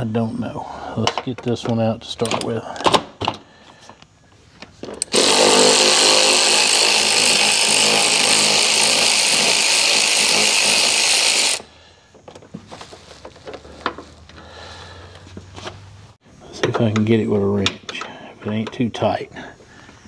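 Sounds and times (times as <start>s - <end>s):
cordless drill spinning: 5.0s - 11.7s.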